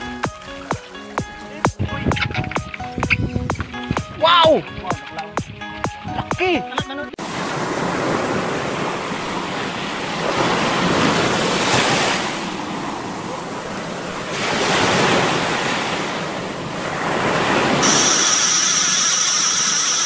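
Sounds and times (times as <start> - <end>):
sea waves: 0.0 - 20.0
wind over water: 1.8 - 6.3, 7.2 - 20.0.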